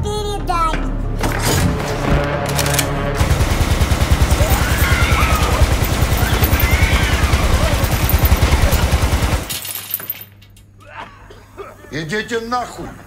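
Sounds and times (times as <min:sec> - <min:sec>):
machine gun automatic burst: 0:02.6 - 0:09.6.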